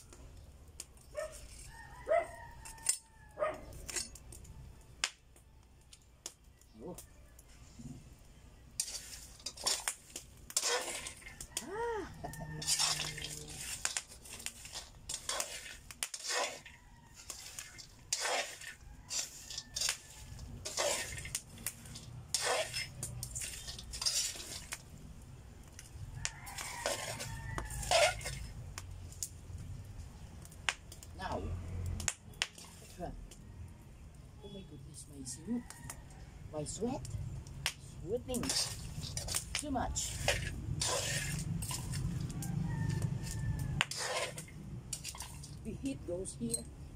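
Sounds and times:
metal spatula scraping a pan: 1.3 - 1.8, 3.7 - 4.2, 8.8 - 25.0, 25.7 - 28.6, 38.2 - 46.7.

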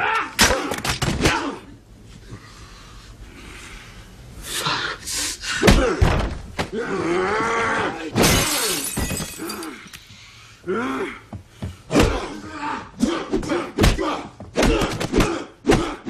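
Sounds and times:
punch and body-blow thuds: 5.6 - 6.8, 13.4 - 16.0
men grunting and shouting: 6.7 - 8.2, 10.6 - 16.0
glass shattering: 8.2 - 10.0.

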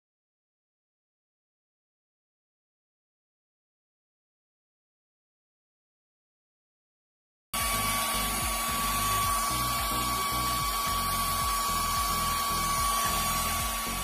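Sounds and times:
bass-heavy music through speaker: 7.6 - 14.0
cooling fan rushing: 7.6 - 14.0
steady high whine: 7.6 - 14.0.

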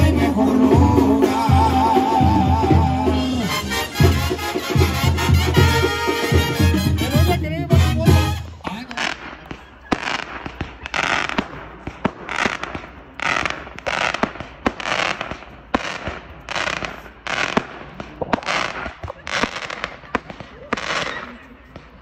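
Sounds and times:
aerial fireworks bursting: 8.7 - 22.0
sharp pops: 9.1 - 21.3.

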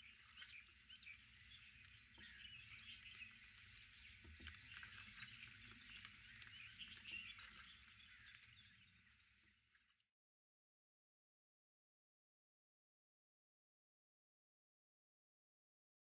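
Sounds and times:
birds chirping: 0.0 - 9.9.

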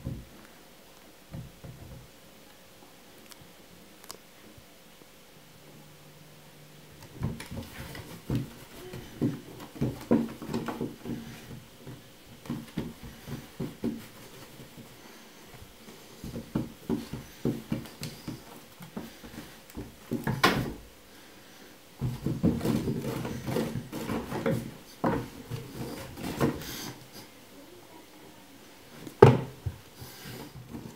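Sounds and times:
loud knock on floorboards: 29.2 - 29.8.

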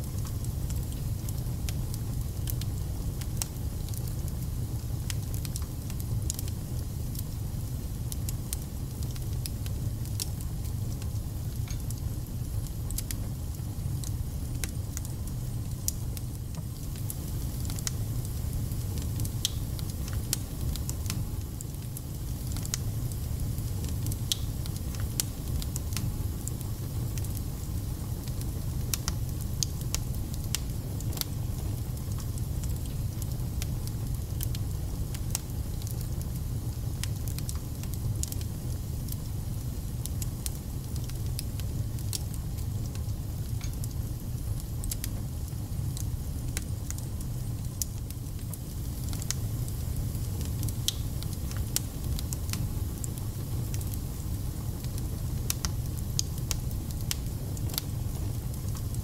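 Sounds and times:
fire crackling and spitting: 0.0 - 59.0
fire rumbling: 0.0 - 59.0.

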